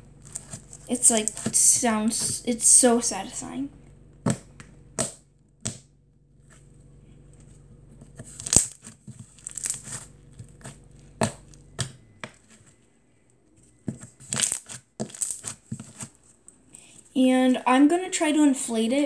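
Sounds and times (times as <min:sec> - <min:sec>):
slime squished by hand: 0:08.2 - 0:11.9, 0:14.2 - 0:16.1.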